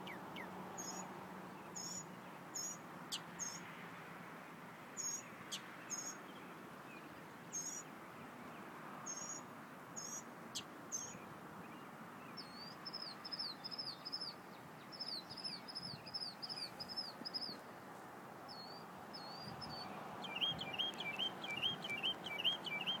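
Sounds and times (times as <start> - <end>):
low background noise: 0.0 - 23.0
mockingbird singing: 18.6 - 23.0.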